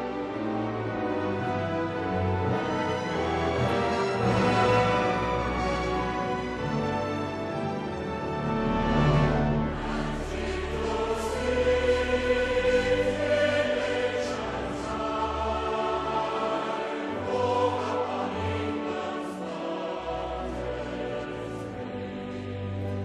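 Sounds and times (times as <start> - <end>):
choir singing held chords: 0.0 - 23.0.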